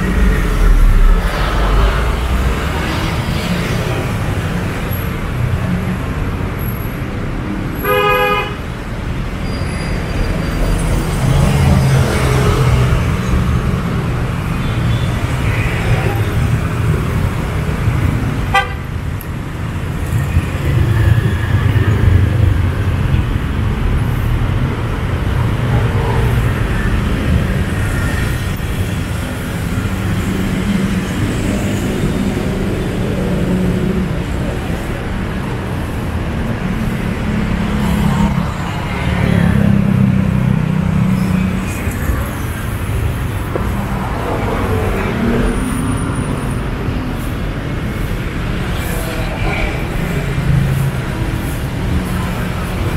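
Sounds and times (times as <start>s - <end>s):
traffic rumble: 0.0s - 52.9s
vehicle horn tooting: 7.8s - 8.6s, 18.5s - 18.9s
people's voices: 41.2s - 52.9s.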